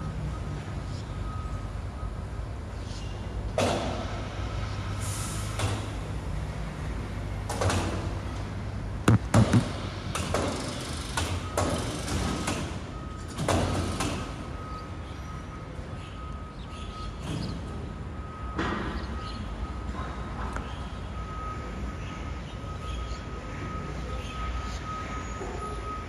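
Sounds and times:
knocks and rattles: 9.1s - 10.5s.

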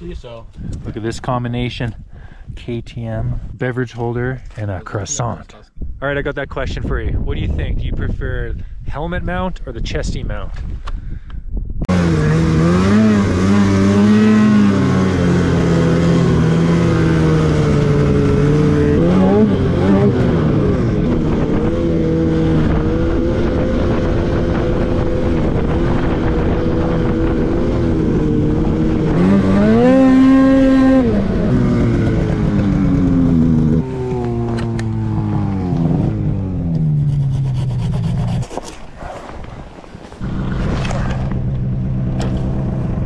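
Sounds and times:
snowmobile engine revving: 11.9s - 38.6s.

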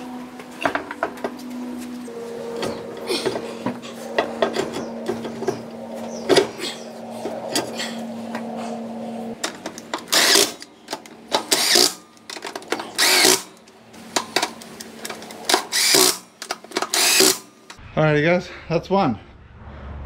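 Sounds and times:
steady hum: 0.0s - 17.9s
cordless power tool bursts: 10.0s - 10.6s, 11.3s - 12.0s, 12.8s - 13.5s, 15.5s - 17.5s.

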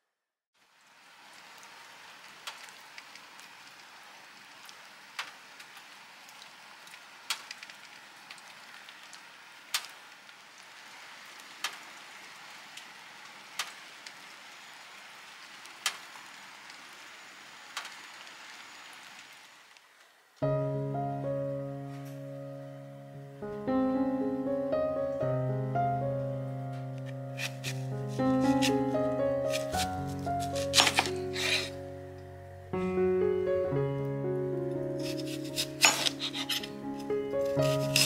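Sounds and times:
rain hiss: 0.6s - 20.5s, 34.8s - 38.0s.

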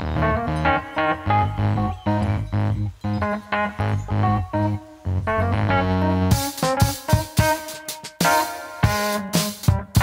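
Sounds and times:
held instrumental notes: 0.0s - 10.0s
drums with steady beat: 6.3s - 10.0s.

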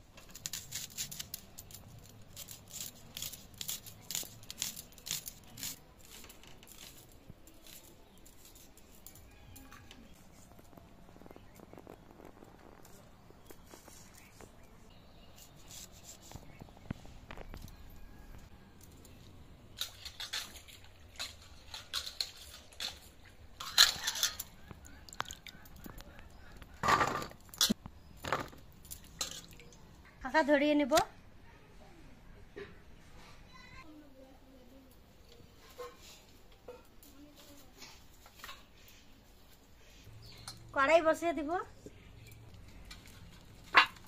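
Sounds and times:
onion skins crackling and tearing: 0.1s - 14.3s.

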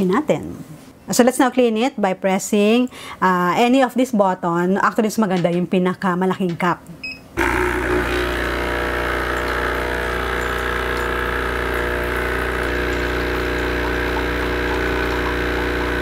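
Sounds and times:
espresso machine pump humming: 7.4s - 16.0s.

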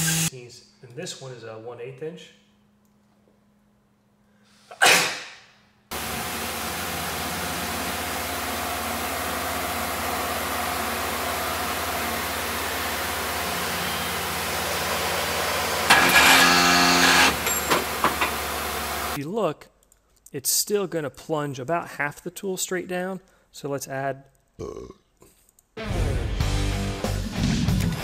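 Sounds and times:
man sneezing: 4.7s - 5.4s
milling machine cutting metal: 6.0s - 19.2s.

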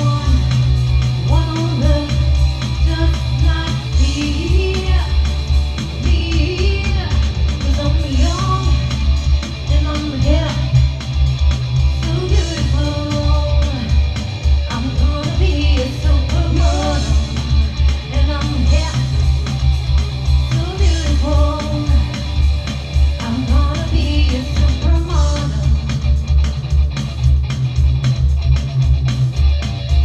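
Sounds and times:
heavy bass: 0.0s - 30.0s
live rock band playing: 0.0s - 30.0s
person singing: 1.3s - 5.3s, 12.0s - 14.0s, 14.6s - 19.2s, 20.5s - 22.4s, 23.2s - 25.9s.

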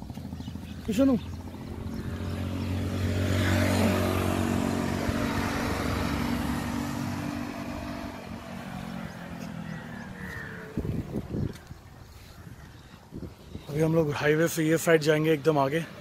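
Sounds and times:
vehicle driving past: 0.3s - 11.6s.

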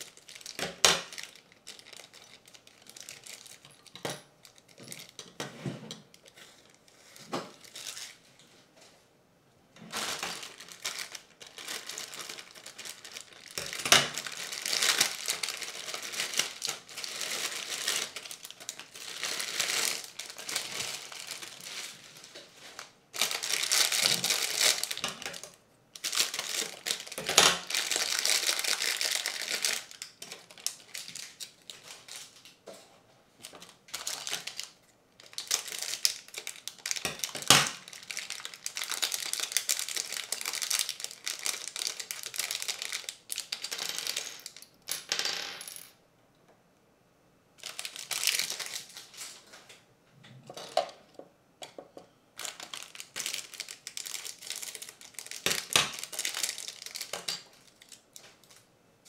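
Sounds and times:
plastic bags crinkling: 0.0s - 5.4s, 6.0s - 8.3s, 9.8s - 32.6s, 33.4s - 44.8s, 47.6s - 49.6s, 52.4s - 58.7s.

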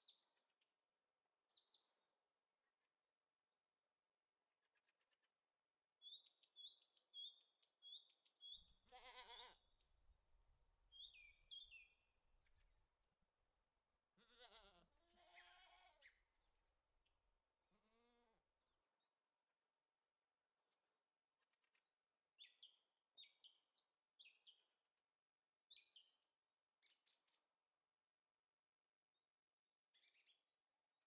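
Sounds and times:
small birds chirping: 6.0s - 10.1s, 10.9s - 12.8s, 17.6s - 19.1s, 20.6s - 24.8s
farm animal bleating: 8.8s - 9.7s, 14.2s - 16.2s, 17.7s - 18.5s.

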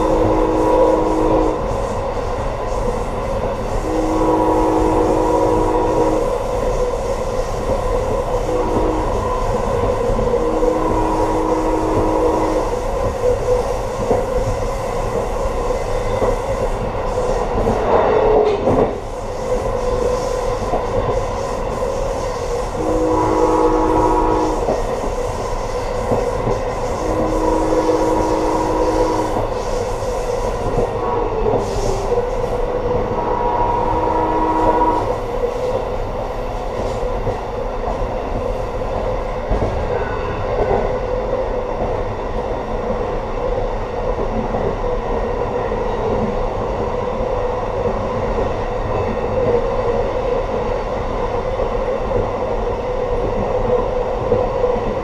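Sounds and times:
train horn blasts: 0.0s - 2.0s, 3.7s - 6.7s, 8.3s - 13.0s, 22.7s - 25.2s, 25.8s - 29.9s, 30.7s - 35.7s, 39.9s - 41.0s
train wheels rumbling and clattering: 0.0s - 55.0s.

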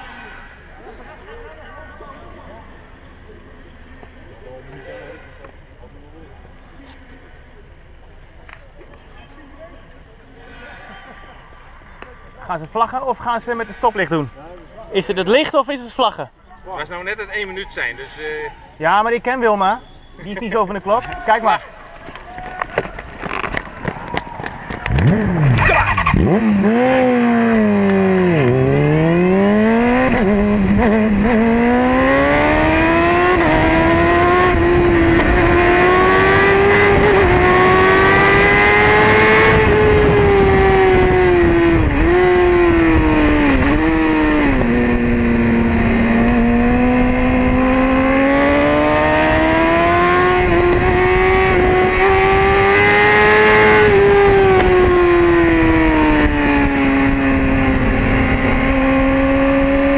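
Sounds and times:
motorcycle engine revving: 24.7s - 59.9s.

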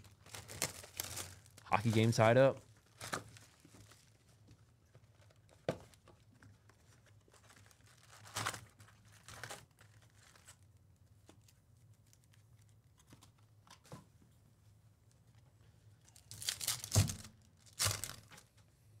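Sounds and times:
foil wrappers crinkling: 0.0s - 10.8s, 16.1s - 18.5s.

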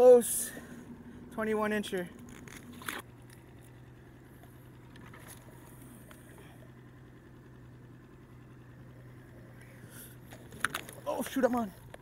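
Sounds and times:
fishing tackle clicking: 10.3s - 11.0s.

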